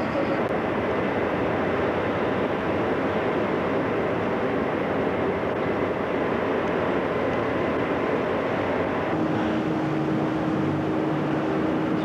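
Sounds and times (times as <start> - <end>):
engine drone: 0.0 - 12.0
steady hum: 0.0 - 12.0.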